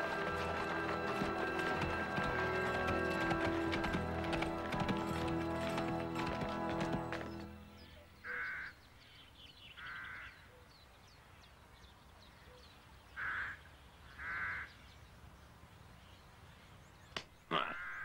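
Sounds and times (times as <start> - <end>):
crow cawing: 8.2 - 8.8, 9.8 - 10.4, 13.2 - 13.6, 14.2 - 14.7, 17.7 - 18.0.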